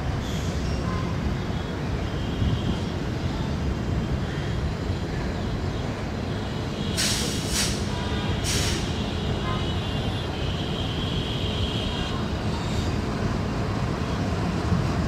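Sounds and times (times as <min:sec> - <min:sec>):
air hiss: 0:07.0 - 0:08.9
locomotive engine rumble: 0:11.7 - 0:15.0.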